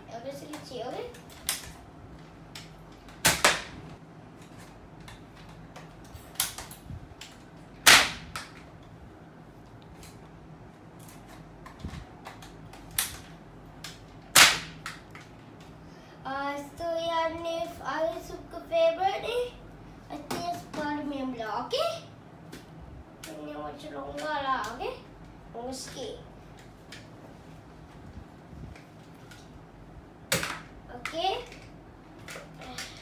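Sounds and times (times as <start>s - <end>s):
foam-dart blaster firing pops: 3.2s - 3.8s, 7.8s - 8.5s, 14.3s - 14.9s.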